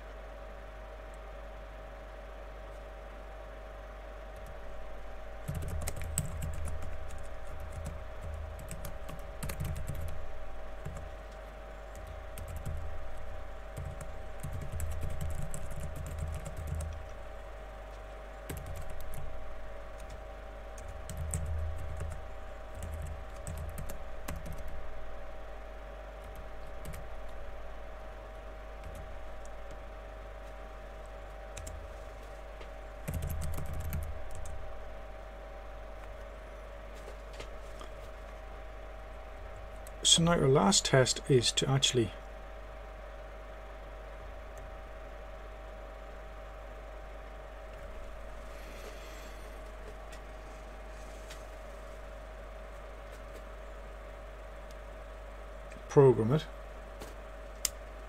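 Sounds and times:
background hum: 0.0s - 58.0s
typing on keyboard: 5.4s - 10.2s, 11.9s - 12.9s, 13.8s - 17.0s, 18.5s - 19.2s, 20.8s - 24.8s, 33.0s - 34.6s.

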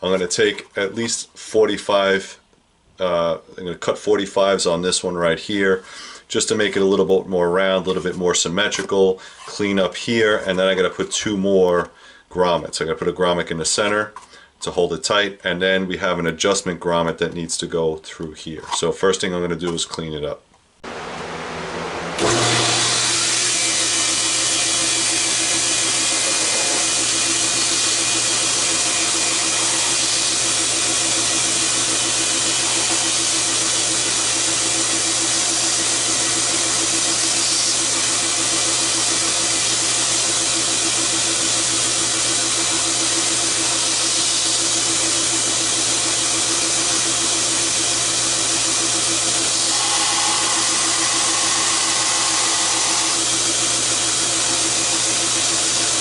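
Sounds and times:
belt grinder grinding plastic: 22.2s - 56.0s.

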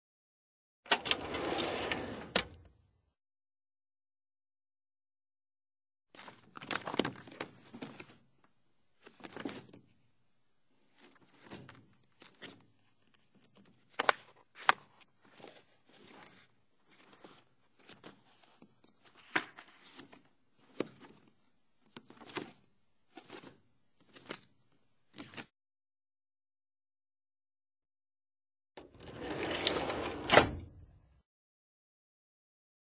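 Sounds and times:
filing cabinet drawers sliding: 0.9s - 2.8s, 28.8s - 31.0s.

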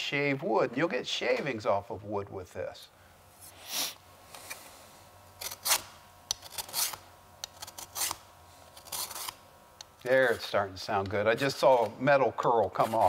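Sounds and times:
file rasping on metal: 5.4s - 8.2s, 8.8s - 9.4s.

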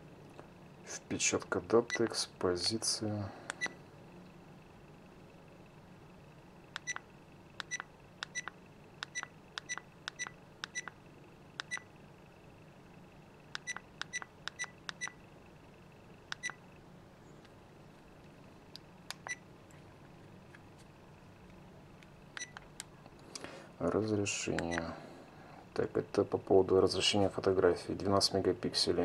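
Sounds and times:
short high camera beeps: 6.8s - 7.0s, 7.6s - 10.9s, 11.6s - 11.9s.

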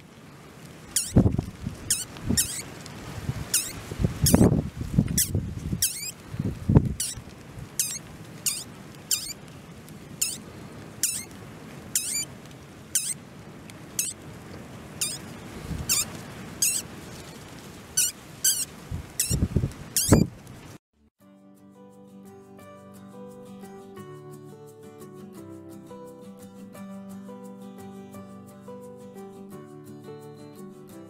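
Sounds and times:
rustling: 0.0s - 20.8s
mink kits squeaking: 0.9s - 2.7s, 3.5s - 4.5s, 5.1s - 6.2s, 6.9s - 7.2s, 7.8s - 9.4s, 10.2s - 10.4s, 11.0s - 11.3s, 12.0s - 12.3s, 12.9s - 13.2s, 14.0s - 14.2s, 15.0s - 15.3s, 15.9s - 17.3s, 18.0s - 19.4s, 20.0s - 20.3s.

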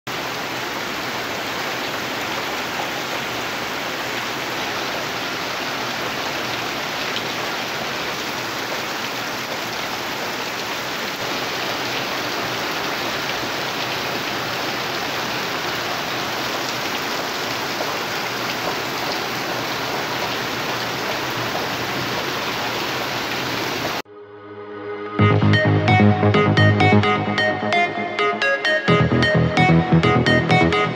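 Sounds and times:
heavy rain falling: 0.1s - 24.0s
electronic music: 24.1s - 30.9s.

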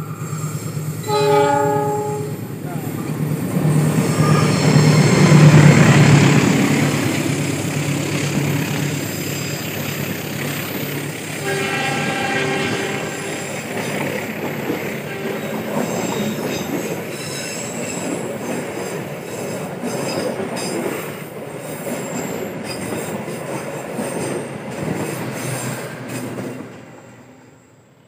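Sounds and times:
wheel flange squeal: 0.0s - 5.6s
train wheels rumbling on rail: 0.0s - 28.0s.

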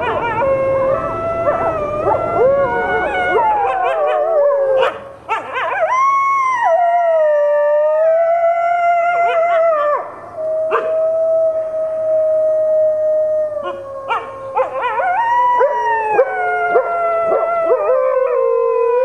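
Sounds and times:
dogs howling: 0.0s - 19.0s.

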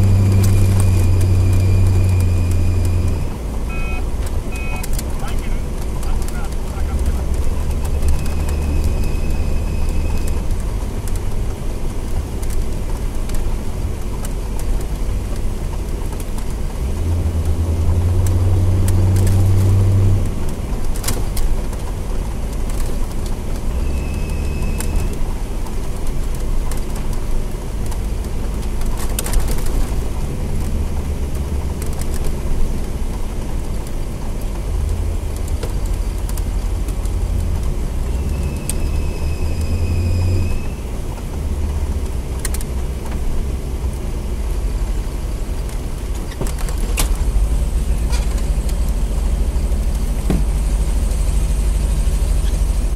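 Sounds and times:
car engine rumbling: 0.0s - 52.9s
fan belt squealing: 38.2s - 40.8s.

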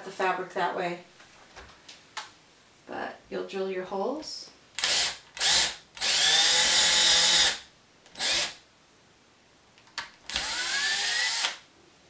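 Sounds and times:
cordless drill whining: 4.8s - 8.6s, 10.3s - 11.6s.

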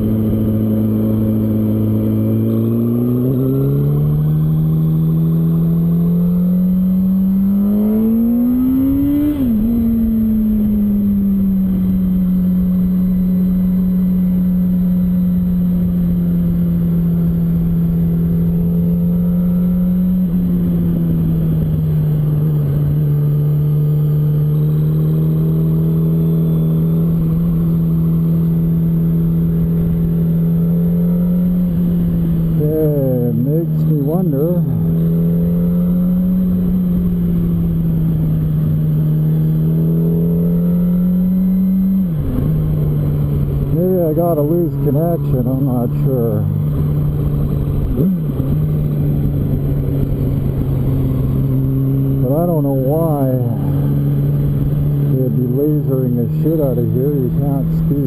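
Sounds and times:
wind and road rush: 0.0s - 58.0s.

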